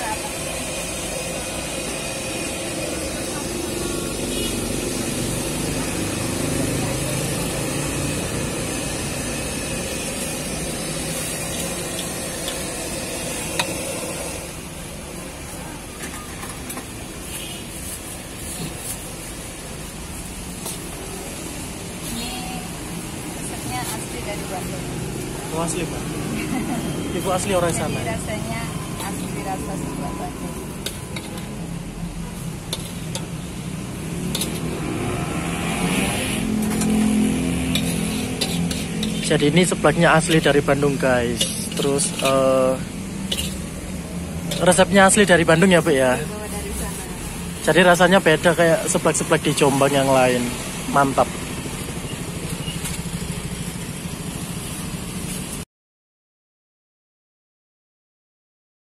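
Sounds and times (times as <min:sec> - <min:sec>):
soup boiling in a wok: 0:00.0 - 0:22.1, 0:30.3 - 0:44.8, 0:50.6 - 0:55.6
vehicle engine humming: 0:00.0 - 0:55.6
ladle clinking against wok: 0:37.6 - 0:39.3, 0:43.2 - 0:43.7.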